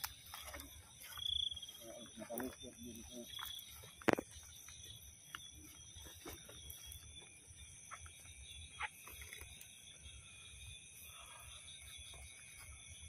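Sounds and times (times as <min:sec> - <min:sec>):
footsteps through dry grass: 0:00.0 - 0:07.4
night insects chirring: 0:00.0 - 0:13.0.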